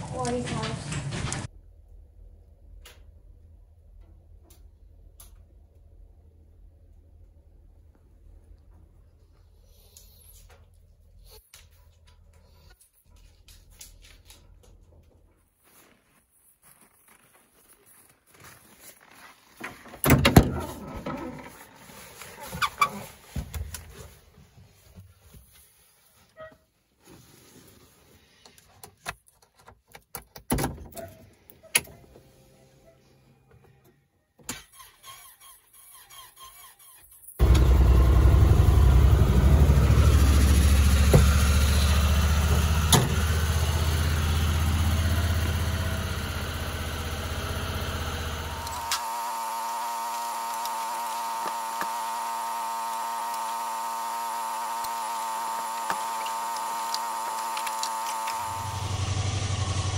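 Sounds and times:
engine starting and idling: 34.5 - 59.9
starter clicks: 48.6 - 58.8.

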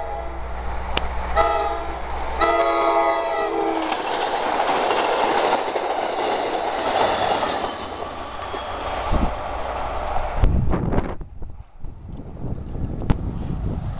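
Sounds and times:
train horn blasts: 0.0 - 0.6, 1.3 - 4.0
train passing at speed: 0.0 - 13.9
wheel clickety-clack: 3.8 - 9.0.

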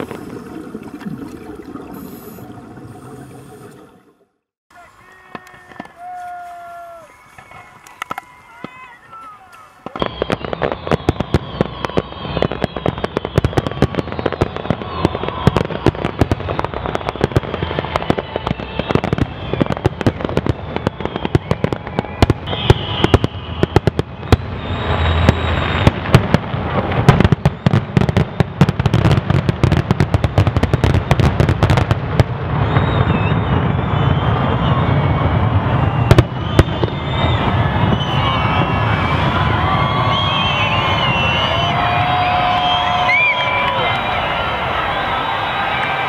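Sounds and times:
fireworks crackling hiss: 1.8 - 3.8, 4.8 - 18.5
fireworks bangs: 4.7 - 46.0.

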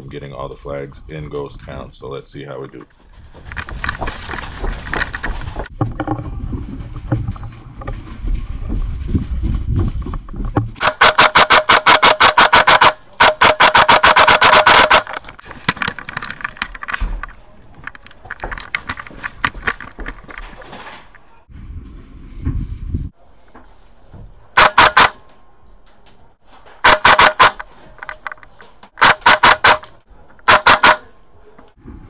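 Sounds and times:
low rumbling of movement: 3.0 - 10.8, 15.2 - 23.4, 31.4 - 32.0
airsoft rifle full-auto bursts: 10.8 - 15.2, 24.6 - 25.2, 26.8 - 27.6, 29.0 - 31.1.

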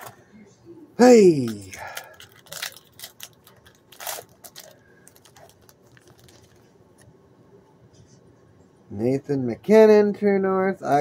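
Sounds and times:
wrapper and cards crinkling: 1.4 - 6.7.

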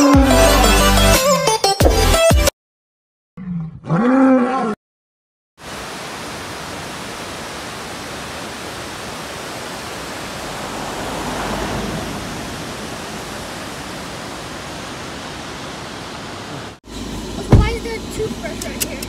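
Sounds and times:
river rushing: 5.6 - 16.8
car passing: 9.9 - 15.8.

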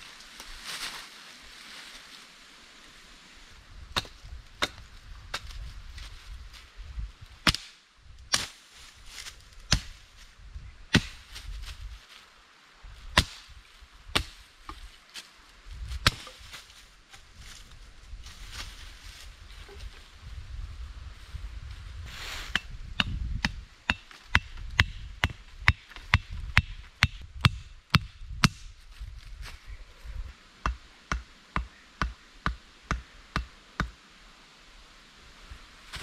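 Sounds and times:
dry leaves rustling: 0.0 - 7.3, 8.4 - 10.4, 11.1 - 22.5, 35.8 - 36.0
hand tool chopping into ground: 7.4 - 8.6, 10.9 - 11.3, 13.1 - 13.5, 14.1 - 14.8, 15.9 - 16.6.

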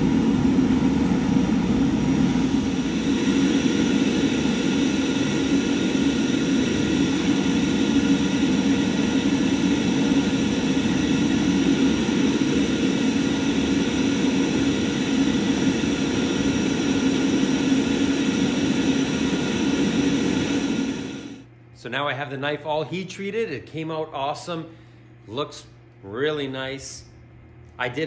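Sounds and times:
gas burner rushing: 0.0 - 21.5
low hum: 0.0 - 21.8.

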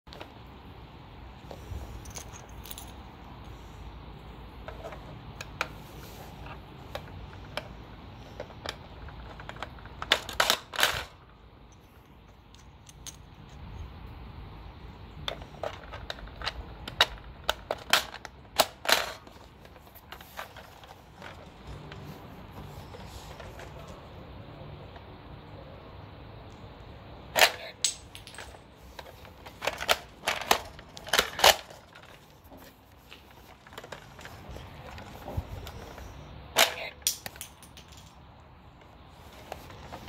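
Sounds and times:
plastic toy gun clacks: 29.4 - 32.3, 36.6 - 38.1.

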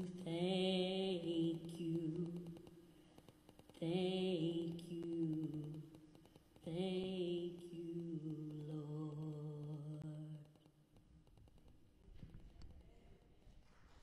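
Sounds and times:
woman singing unaccompanied: 0.0 - 2.7, 3.7 - 10.7.

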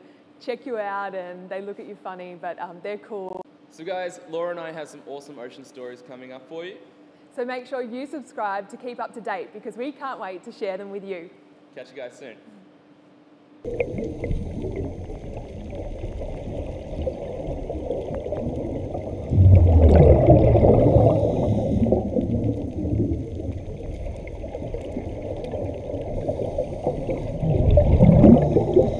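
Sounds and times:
rushing gurgling water: 13.7 - 28.9.

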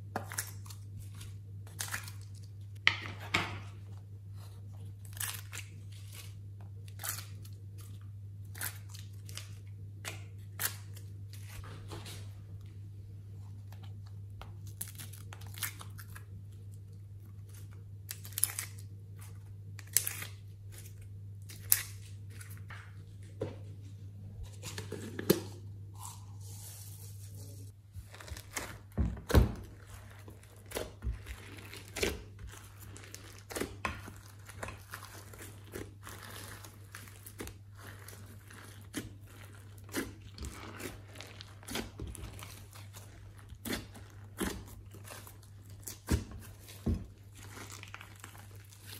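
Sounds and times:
slime being kneaded by hand: 24.5 - 48.9.

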